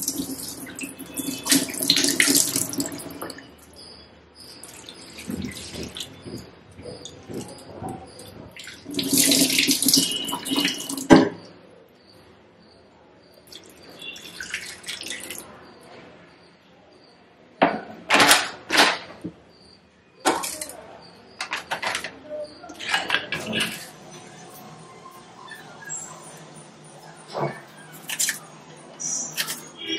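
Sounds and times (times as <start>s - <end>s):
water pouring and splashing: 0.0s - 3.5s, 4.6s - 7.7s, 8.4s - 11.1s, 13.5s - 15.5s, 28.0s - 28.4s.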